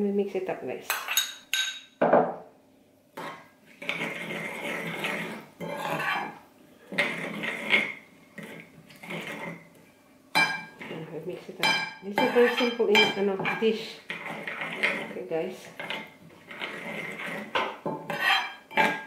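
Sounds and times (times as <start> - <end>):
spoon scraping round a bowl: 3.2 - 9.7, 12.1 - 19.0.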